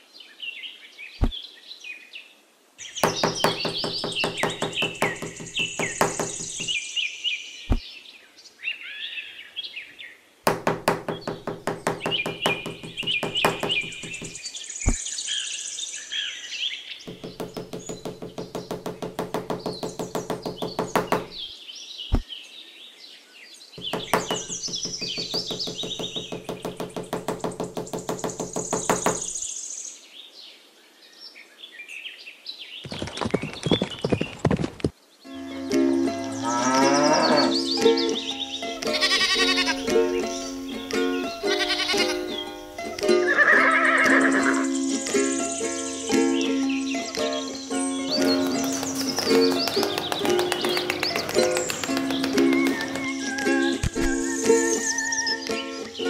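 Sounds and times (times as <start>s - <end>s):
birds chirping: 2.8s - 22.5s, 23.7s - 30.0s, 32.7s - 56.0s
fast repeated knocking: 3.0s - 6.8s, 10.5s - 14.4s, 17.1s - 21.4s, 23.8s - 29.4s, 48.1s - 53.3s
single sharp knocks: 3.0s - 6.8s, 10.5s - 15.0s, 17.1s - 21.4s, 23.8s - 29.4s, 48.1s - 53.1s.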